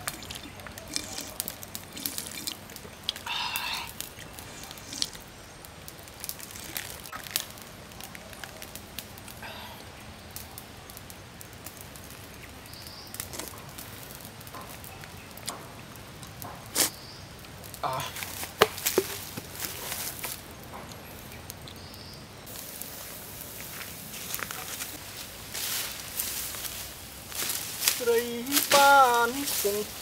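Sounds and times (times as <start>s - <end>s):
person swallowing: 0.0s - 5.2s
twig fire crackling: 0.0s - 30.0s.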